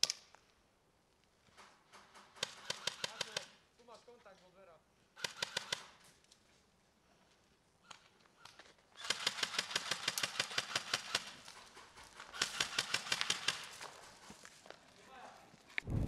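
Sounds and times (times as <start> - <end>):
airsoft gun bursts: 2.4 - 3.6, 5.2 - 6.0, 9.0 - 11.4, 12.2 - 13.7.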